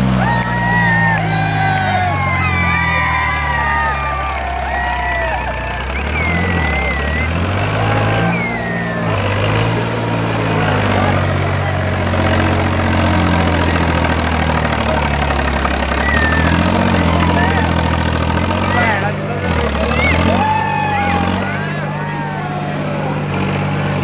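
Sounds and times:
tractor diesel engine revving: 0.0s - 24.0s
wheels spinning in loose dirt: 0.0s - 24.0s.

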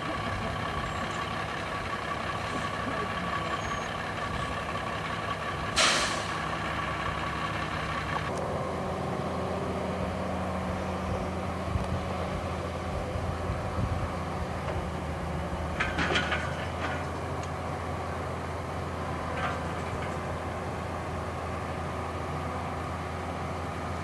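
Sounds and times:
diesel engines running: 0.0s - 24.0s
air brake hiss: 5.8s - 6.4s.

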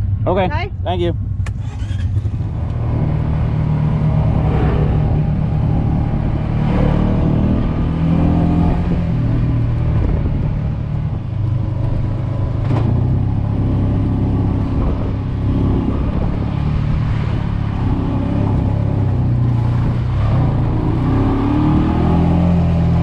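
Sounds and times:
utility vehicle engine running: 0.0s - 23.0s.

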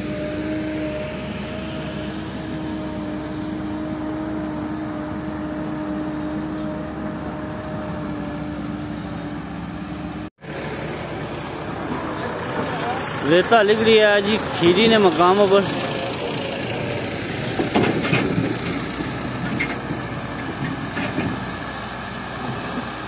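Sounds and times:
vehicle engine whining: 0.0s - 23.0s.

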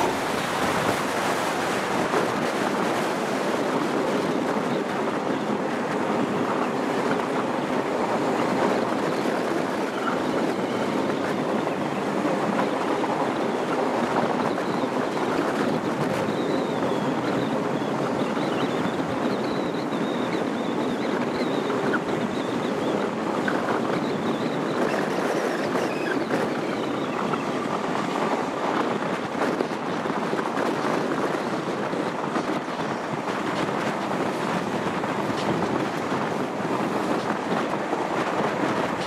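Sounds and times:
train running on rails: 0.0s - 39.0s
wind buffeting microphone: 0.0s - 39.0s
high wavering wheel squeal: 7.9s - 27.9s.

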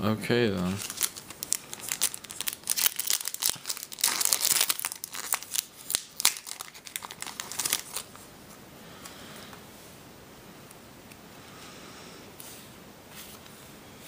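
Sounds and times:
foil wrapper crinkling: 0.6s - 8.2s.

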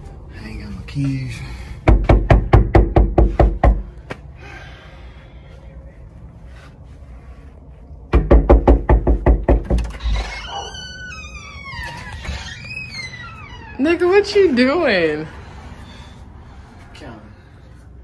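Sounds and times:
knuckles knocking on door: 1.8s - 3.9s, 8.1s - 10.0s.

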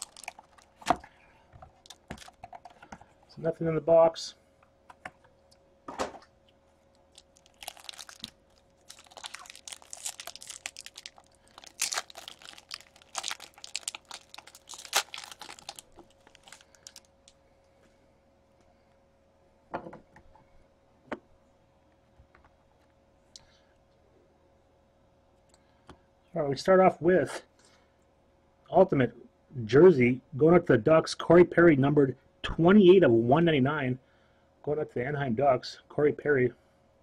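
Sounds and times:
plastic wrapping crinkling and tearing: 0.0s - 1.0s, 1.8s - 2.5s, 6.9s - 17.4s.

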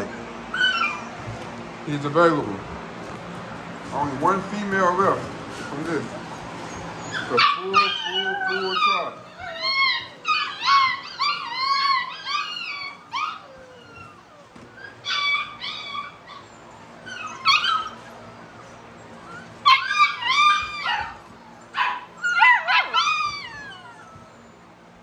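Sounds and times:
puppy howling: 0.0s - 1.3s, 4.8s - 25.0s
puppies whimpering and yipping: 0.0s - 1.6s, 3.9s - 25.0s.

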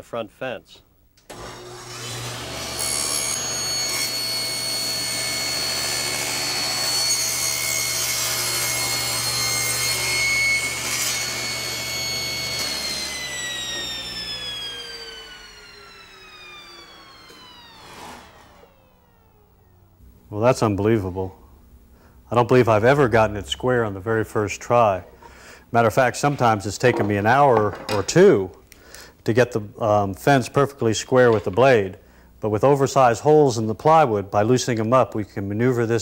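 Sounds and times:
table saw cutting wood: 1.3s - 19.4s.

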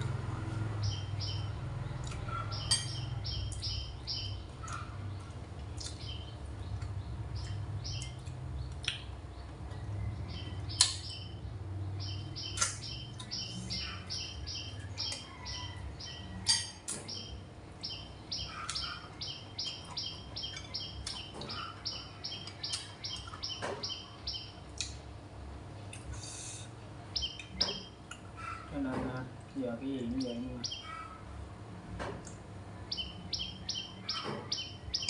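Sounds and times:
bird chirping rapidly: 0.8s - 24.6s, 27.1s - 28.7s, 29.7s - 31.2s, 32.9s - 35.0s
utensils clinking on china bowls: 2.6s - 3.1s.

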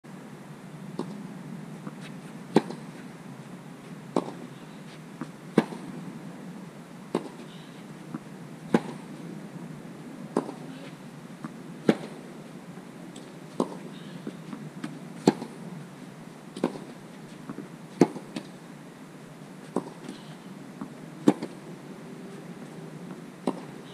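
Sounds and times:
tennis balls struck by racquets: 1.0s - 1.2s, 1.8s - 2.9s, 4.1s - 6.1s, 7.1s - 7.5s, 8.1s - 9.1s, 10.3s - 12.3s, 13.2s - 15.6s, 16.5s - 18.5s, 19.6s - 21.7s, 23.4s - 23.9s.

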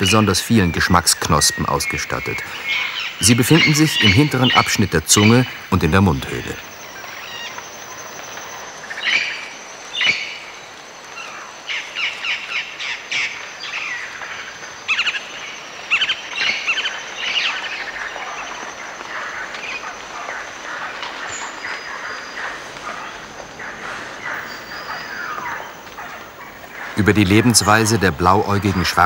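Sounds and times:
thin steady high tone: 0.0s - 9.8s
parrot calls: 19.2s - 28.6s.

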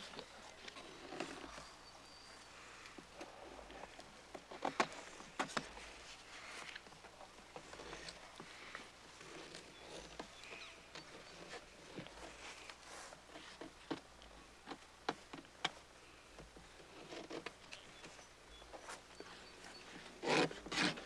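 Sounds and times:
knife scraping bark: 20.2s - 21.0s.

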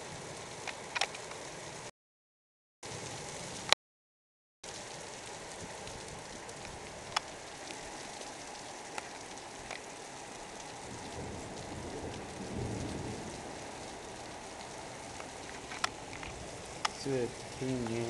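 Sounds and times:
heavy rain on a rooftop: 0.0s - 1.9s, 2.8s - 3.8s, 4.6s - 18.0s
raindrops ticking close by: 0.0s - 1.9s, 4.6s - 18.0s
distant thunder rumble: 10.5s - 18.0s.

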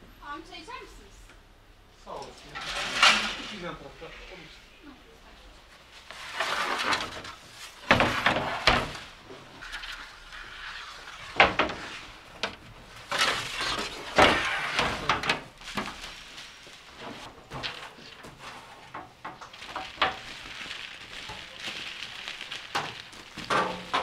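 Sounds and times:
metal trays scraping: 2.4s - 4.6s, 6.2s - 9.0s, 13.0s - 16.1s.

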